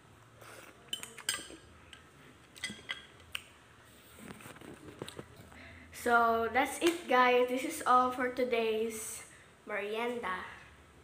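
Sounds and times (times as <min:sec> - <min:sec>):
cutlery clinking on a plate: 0:00.9 - 0:03.1.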